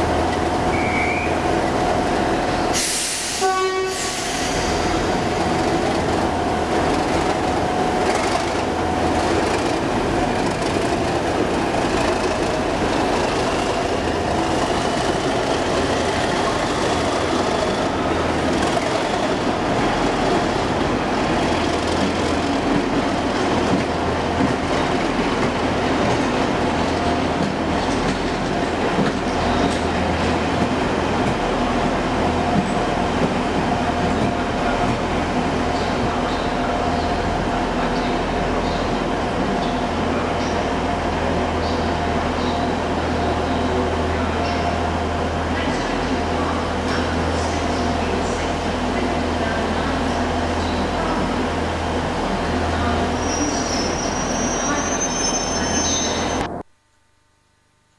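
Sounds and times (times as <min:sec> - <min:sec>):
diesel locomotive engine working: 0:00.0 - 0:56.7
coaches clattering over rails: 0:04.5 - 0:38.9.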